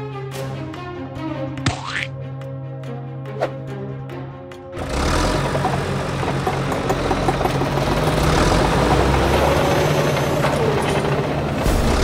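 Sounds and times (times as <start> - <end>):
construction vehicle engine droning: 4.7 - 12.0.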